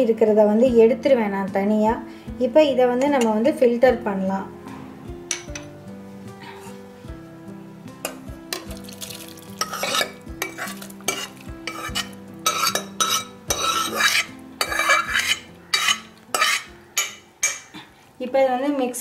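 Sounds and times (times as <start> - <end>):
steel ladle scraping metal pot: 8.0 - 17.7.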